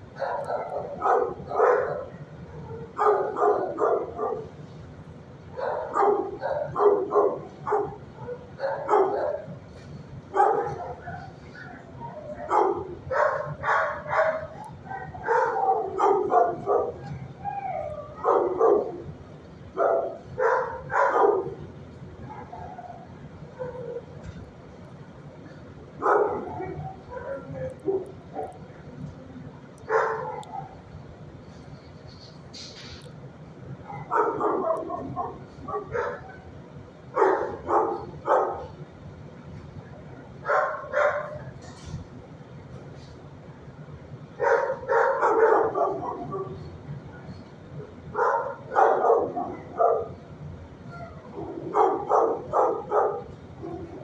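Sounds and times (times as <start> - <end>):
dog barking: 0.2 - 4.5, 5.5 - 9.5, 10.3 - 17.2, 17.9 - 19.0, 19.8 - 21.6, 22.3 - 24.1, 26.0 - 28.6, 29.9 - 30.8, 33.8 - 36.5, 37.1 - 38.8, 40.4 - 41.6, 44.4 - 46.6, 48.1 - 50.2, 51.1 - 54.0
dog whining: 16.6 - 19.0, 50.8 - 51.8.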